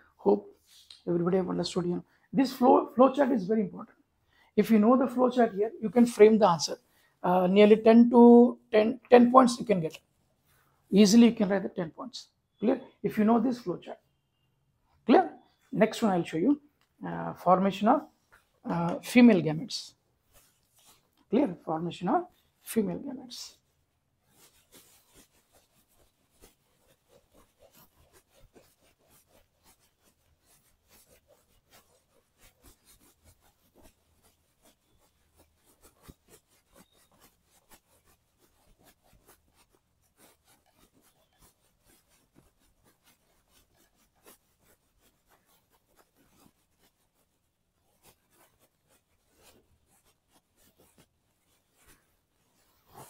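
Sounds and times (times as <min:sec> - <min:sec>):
eraser scrubbing whiteboard: 0:17.5 - 0:53.0.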